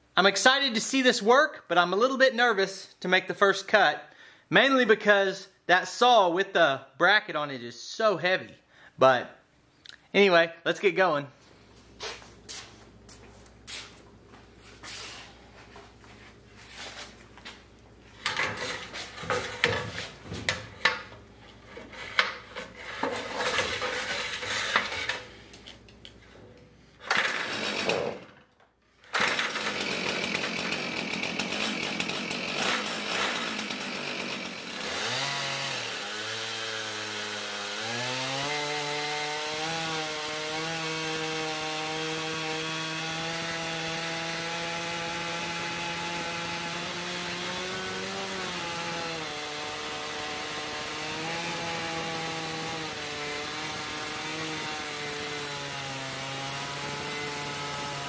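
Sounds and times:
chainsaw cutting log: 18.1 - 25.9, 27.0 - 58.0.

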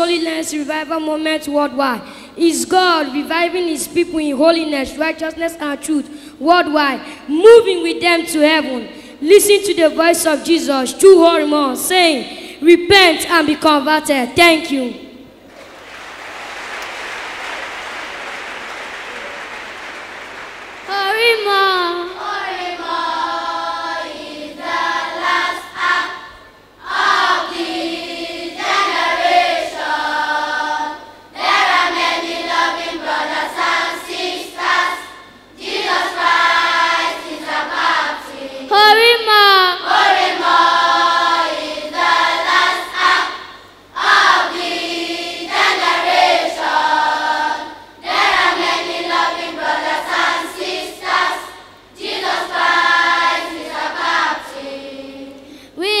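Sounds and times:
children's choir singing: 20.8 - 55.5.

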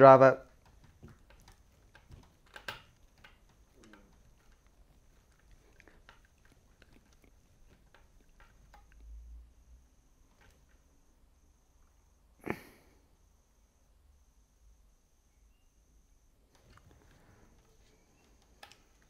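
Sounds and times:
screwdriver turning a screw: 0.4 - 9.0
click: 18.2 - 19.0.

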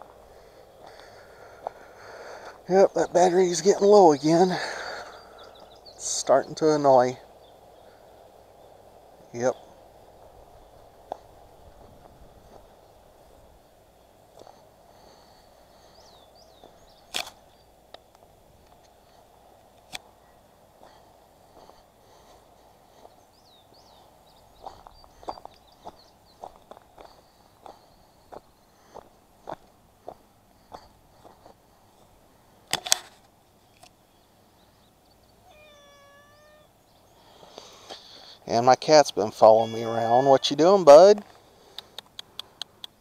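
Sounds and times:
faint high bird chirps: 33.6 - 37.4, 39.4 - 40.9
cat meowing: 35.4 - 36.7, 39.4 - 40.7
sharp clicks: 41.7 - 43.0.

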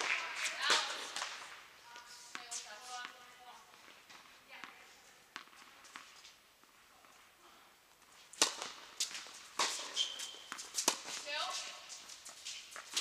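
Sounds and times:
tennis ball struck by racket: 0.0 - 1.5, 8.4 - 11.3
shoe squeak on hard court: 9.6 - 11.8.

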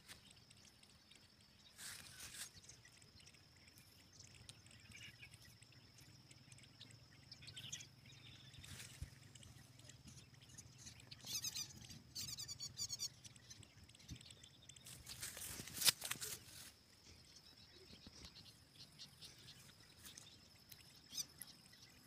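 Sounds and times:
bat chittering squeaks: 10.8 - 13.2
grass rustling with handling: 15.1 - 16.7.

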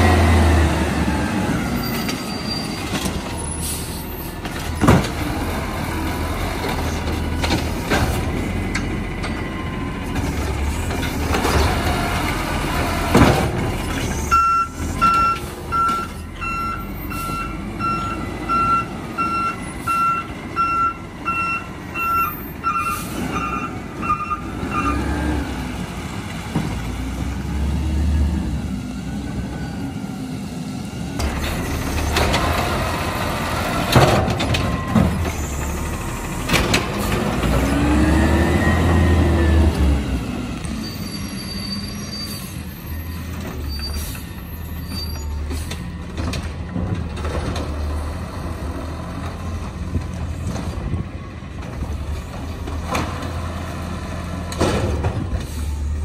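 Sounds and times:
garbage truck engine running: 23.2 - 56.0.

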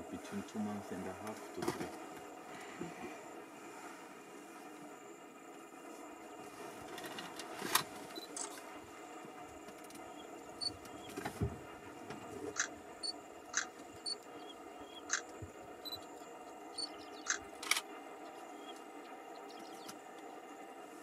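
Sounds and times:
faint hum: 0.0 - 21.0.

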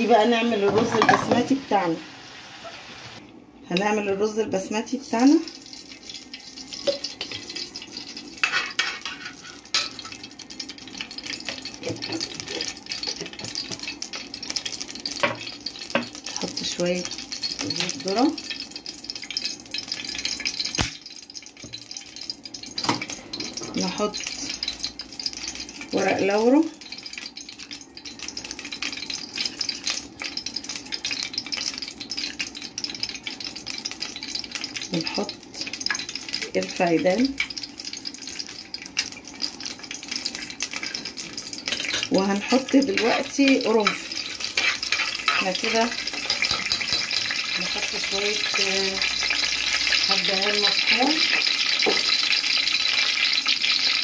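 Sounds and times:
fat sizzling in a pot: 0.0 - 54.0
spoon clinking against a pot: 41.6 - 47.5.

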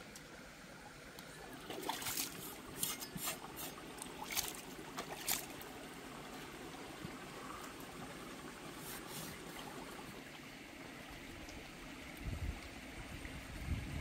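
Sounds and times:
stream trickling: 0.0 - 14.0
water splashing: 1.2 - 10.3.

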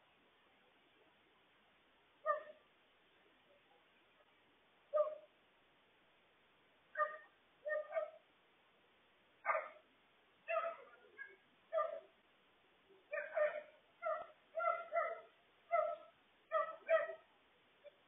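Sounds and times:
dog barking: 2.2 - 2.6, 4.9 - 5.3, 7.0 - 8.2, 9.4 - 9.9, 10.5 - 12.2, 13.1 - 17.3.

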